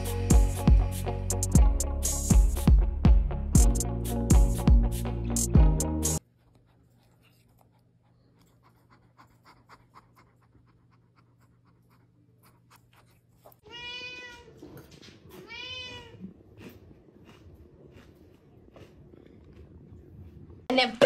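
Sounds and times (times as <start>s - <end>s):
cat meowing: 13.6s - 16.4s.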